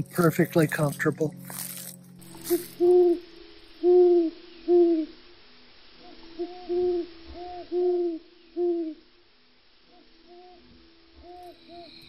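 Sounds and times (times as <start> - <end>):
owl hooting: 2.2 - 5.2, 6.0 - 9.1, 9.8 - 12.0.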